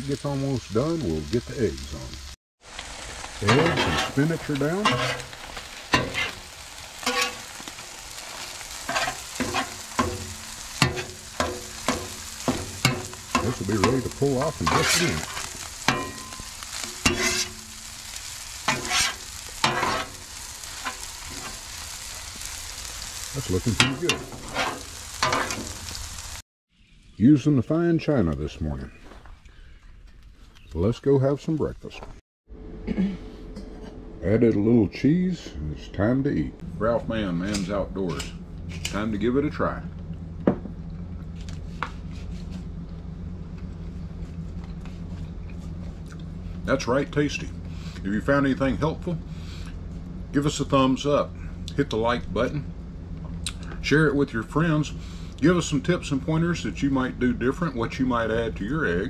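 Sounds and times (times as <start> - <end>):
eggs sizzling on a griddle: 0.0 - 26.4
metal spatula scraping griddle: 3.4 - 21.8, 23.6 - 25.8
steady low hum: 3.4 - 26.3, 32.5 - 59.0.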